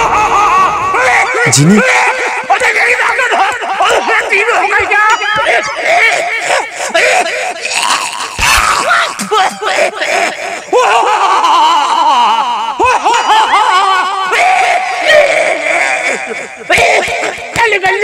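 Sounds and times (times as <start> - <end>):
men yelling and laughing: 0.0 - 17.6.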